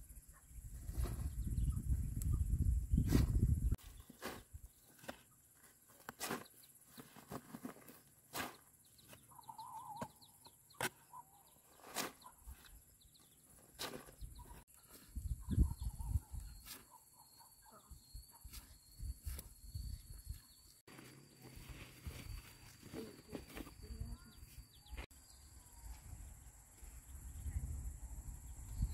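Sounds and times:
hoe chopping into dry soil: 3.1s - 5.2s, 6.0s - 9.2s, 10.8s - 11.2s, 11.8s - 12.3s, 13.6s - 14.2s.

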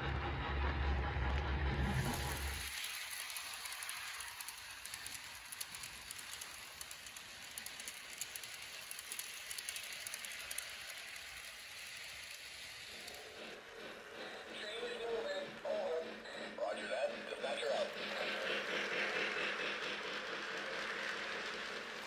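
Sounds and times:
model train wheels clicking: 1.2s - 22.0s.

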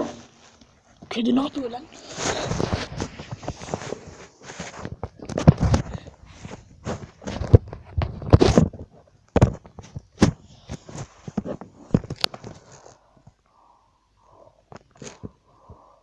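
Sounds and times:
phone handling rustles and knocks: 2.4s - 12.8s.

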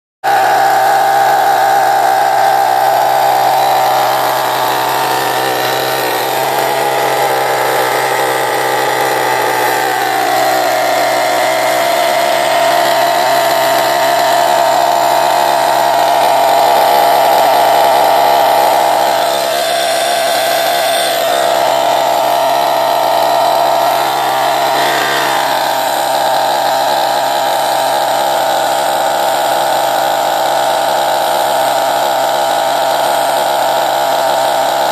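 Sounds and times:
high-pitched nitro engine buzz: 0.2s - 34.9s.

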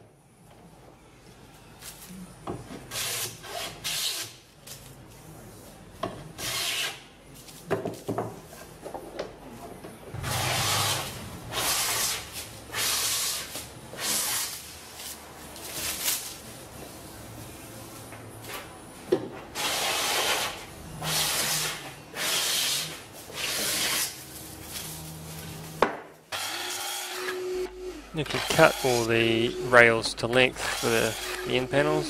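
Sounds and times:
hand plane cutting wood: 30.6s - 31.9s.

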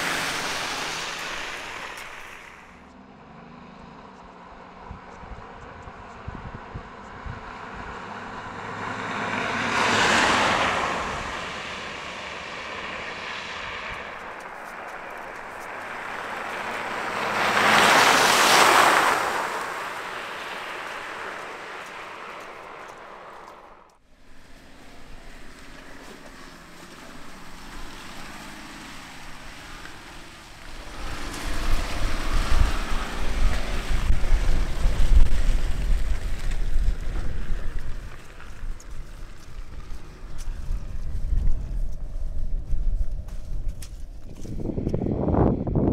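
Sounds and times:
vehicle splashing through mud: 0.0s - 2.8s, 8.0s - 41.2s
engine pulling under load: 0.0s - 3.2s, 7.6s - 41.9s.

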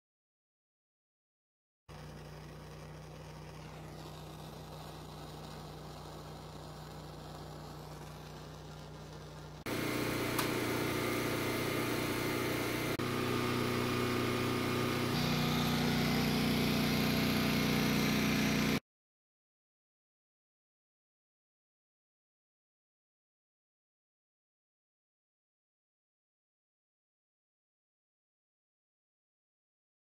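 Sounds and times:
small machine motor humming: 1.9s - 18.8s.

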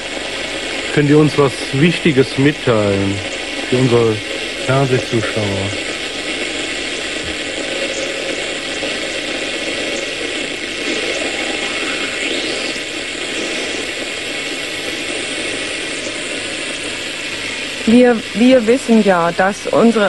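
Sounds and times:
rushing static from loudspeaker: 0.0s - 20.0s
faint rising whistle: 10.9s - 13.8s.

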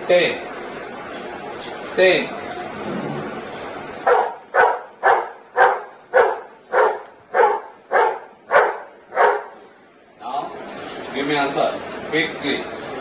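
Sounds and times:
large dog barking: 4.0s - 9.6s.

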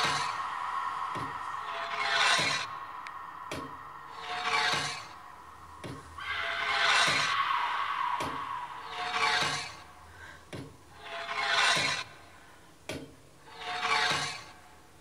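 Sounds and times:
person breathing heavily: 0.0s - 11.0s.

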